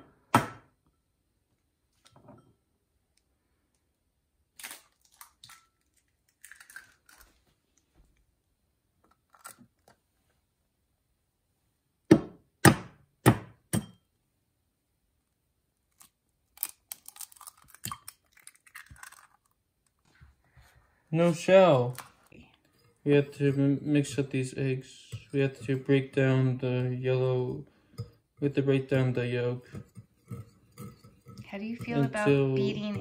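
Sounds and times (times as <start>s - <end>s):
eggshell crackling: 4.5s - 7.3s, 15.8s - 20.1s.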